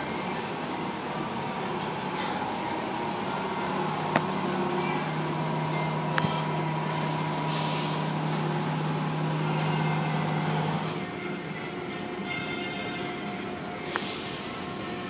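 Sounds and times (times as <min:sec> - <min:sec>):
car wash machine hum: 0:00.0 - 0:12.2
water spraying hiss: 0:06.9 - 0:08.1, 0:13.8 - 0:14.8.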